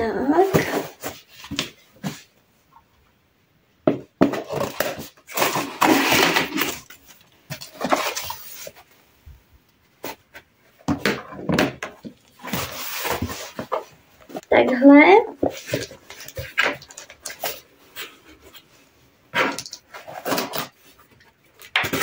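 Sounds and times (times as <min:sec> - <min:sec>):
cardboard and tape tearing: 0:04.4 - 0:08.8, 0:19.4 - 0:20.9.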